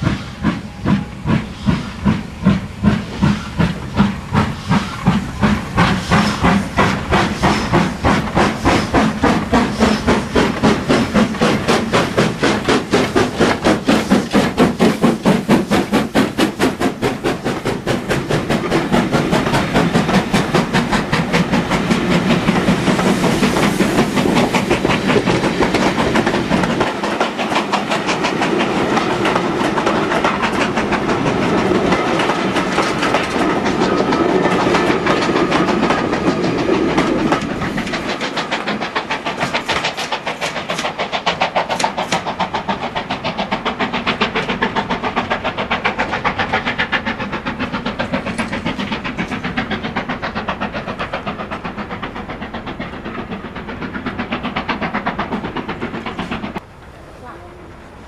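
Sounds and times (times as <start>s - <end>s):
train wheels clattering over rails: 0.0s - 58.0s.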